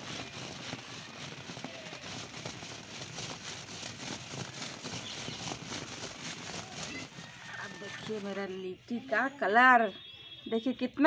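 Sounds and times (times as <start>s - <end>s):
dough balls knocking together: 0.0s - 8.4s
cloth rustling: 0.0s - 9.1s.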